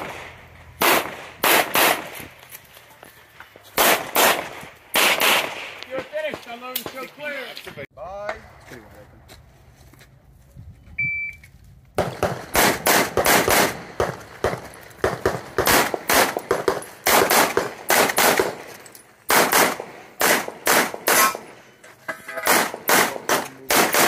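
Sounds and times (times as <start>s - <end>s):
rapid pistol shots: 0.0s - 2.2s, 3.8s - 5.8s, 12.0s - 18.6s, 19.3s - 21.6s, 22.5s - 24.0s
shot timer beep: 11.0s - 11.4s.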